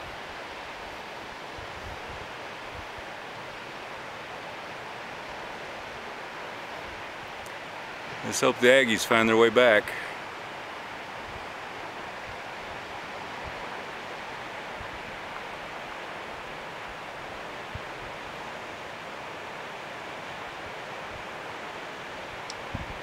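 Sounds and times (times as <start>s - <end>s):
flowing water rushing: 0.0s - 23.0s.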